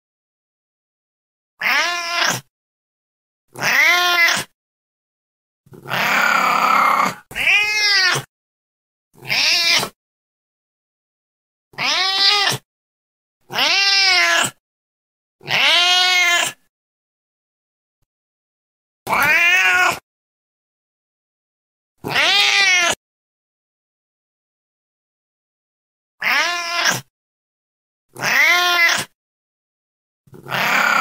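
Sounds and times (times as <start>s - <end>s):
cat meowing: 1.6s - 2.5s, 3.6s - 4.5s, 5.8s - 8.3s, 9.2s - 10.0s, 11.8s - 12.6s, 13.5s - 14.6s, 15.4s - 16.6s, 19.1s - 20.0s, 22.0s - 23.0s, 26.2s - 27.1s, 28.2s - 29.2s, 30.4s - 31.0s.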